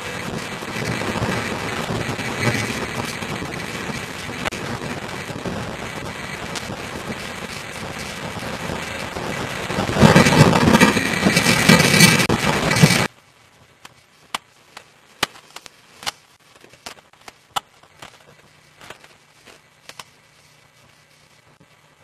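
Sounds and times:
storm wind on microphone: 0.0s - 13.1s
faint clicks and pops: 0.3s - 20.9s.

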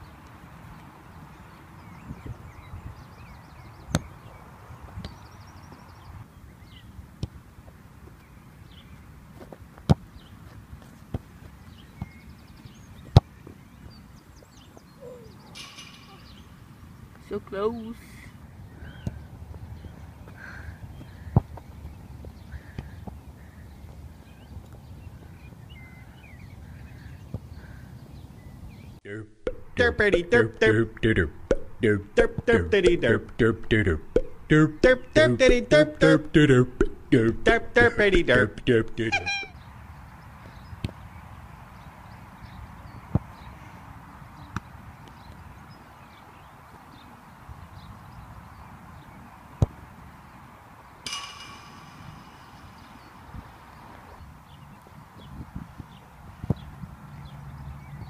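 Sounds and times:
wind rumbling on microphone: 1.9s - 3.5s, 52.1s - 57.1s
birds chirping: 11.5s - 43.6s, 51.1s - 58.0s
faint bird chirps: 13.9s - 17.2s, 51.1s - 55.4s.

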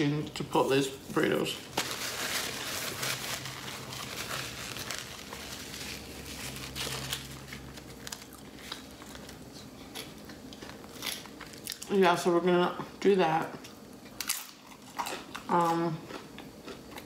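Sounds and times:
foil wrapper crinkling: 1.2s - 9.5s.

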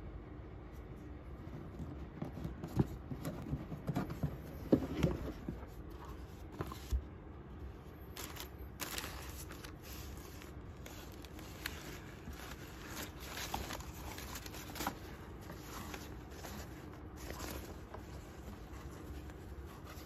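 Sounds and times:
tissue paper rustling: 8.1s - 20.0s.

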